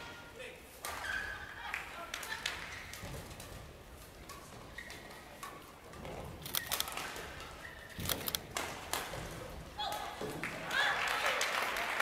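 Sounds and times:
rackets hitting shuttlecock: 2.1s - 10.4s
shoes squeaking on court floor: 2.6s - 8.2s.

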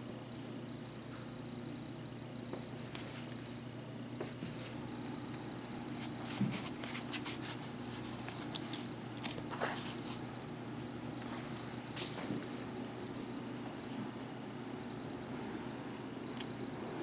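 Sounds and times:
paper pages flipping: 6.0s - 10.2s.

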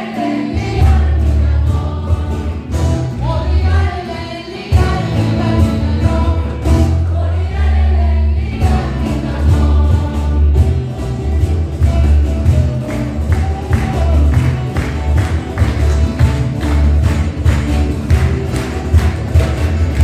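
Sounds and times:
mixed choir singing: 0.0s - 18.3s
acoustic guitars and lute: 0.0s - 20.0s
strummed beat: 0.0s - 20.0s.

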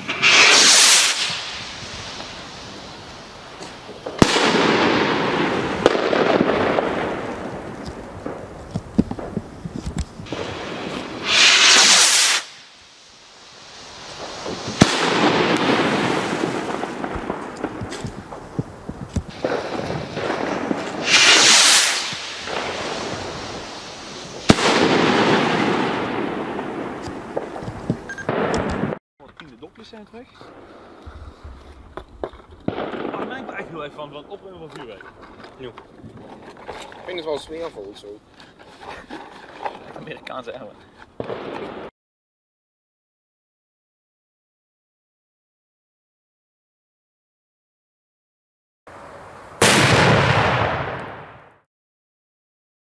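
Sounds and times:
scattered crackling pops: 0.0s - 13.2s, 13.8s - 41.9s
firework shells bursting: 0.0s - 29.0s
rocket rushing hiss: 0.0s - 29.0s.

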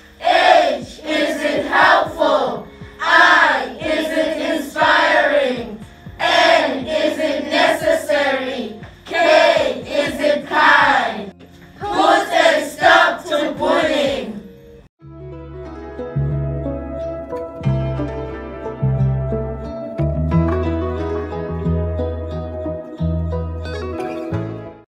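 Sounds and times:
background music: 0.0s - 24.9s
group of voices calling out: 6.6s - 14.4s.

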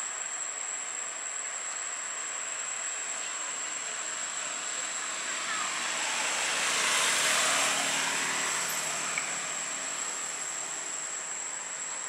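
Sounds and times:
thin constant whine: 8.2s - 12.0s.

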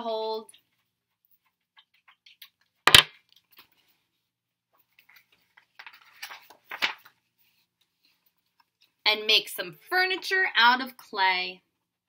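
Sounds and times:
sharp knock: 2.9s - 3.1s
book pages flipping: 4.8s - 9.0s.

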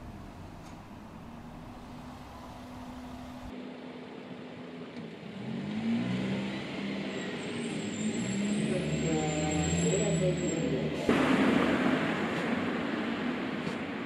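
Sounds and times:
bus engine running: 0.0s - 5.3s
vehicle engine accelerating: 5.2s - 13.9s.

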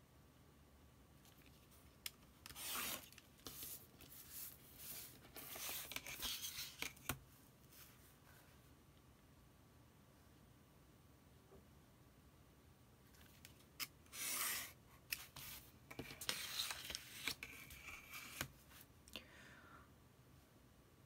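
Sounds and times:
knife cutting paper: 2.4s - 7.0s.

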